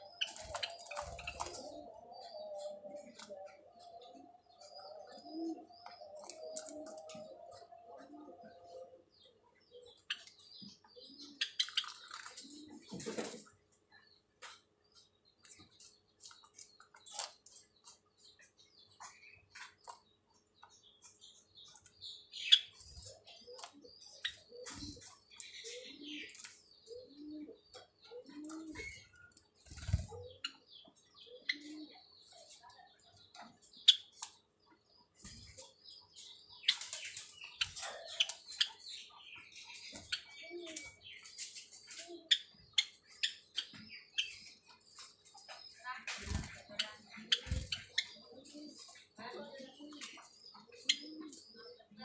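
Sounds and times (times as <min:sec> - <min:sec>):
sparrows chirping: 0:00.0 - 0:52.0
wing flutters: 0:46.0 - 0:48.1.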